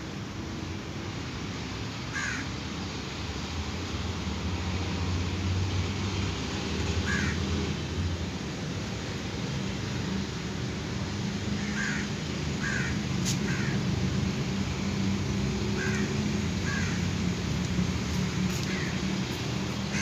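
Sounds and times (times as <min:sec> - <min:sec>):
crow cawing: 0:02.1 - 0:02.5, 0:07.0 - 0:07.4, 0:11.6 - 0:13.8, 0:15.8 - 0:17.1, 0:18.6 - 0:19.0.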